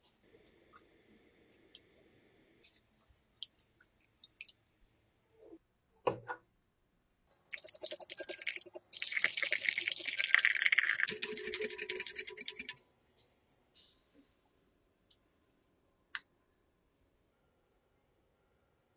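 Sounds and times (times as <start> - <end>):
milk pouring: 7.5 - 12.8
whisk beating eggs in glass bowl: 10.7 - 12.8.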